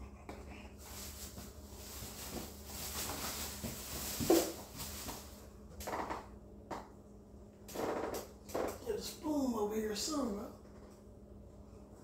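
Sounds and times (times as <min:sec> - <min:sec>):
rustling of kitchen items: 0:00.7 - 0:06.0.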